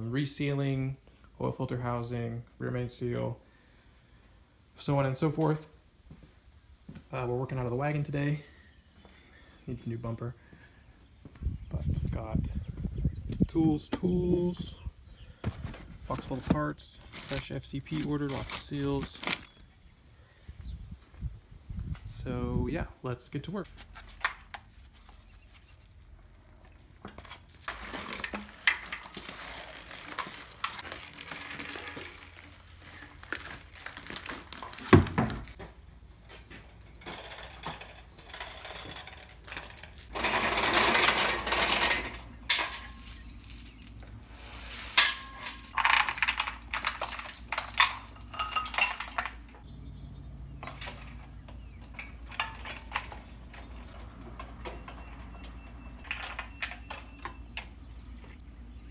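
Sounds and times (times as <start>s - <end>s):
metal tools clinking: 27.0s - 30.8s, 37.0s - 49.6s, 50.6s - 57.7s.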